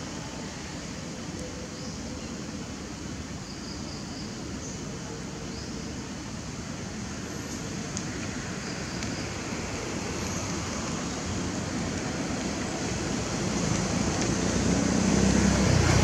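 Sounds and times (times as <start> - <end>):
steady rain falling: 0.0 - 16.0.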